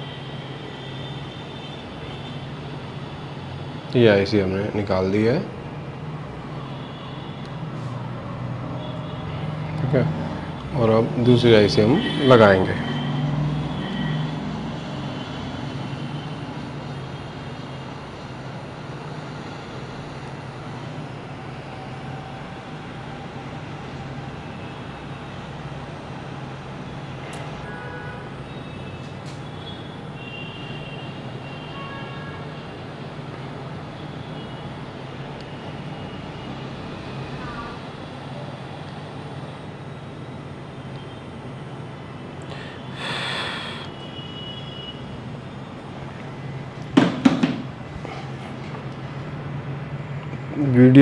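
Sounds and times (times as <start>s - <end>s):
hot-air station humming: 0.0s - 51.0s
air blowing hiss: 42.5s - 44.0s.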